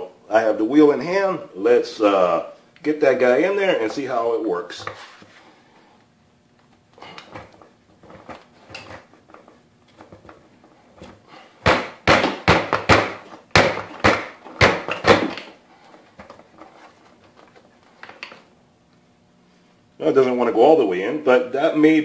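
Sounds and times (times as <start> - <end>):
hard knocks on plastic: 11.6 - 15.5.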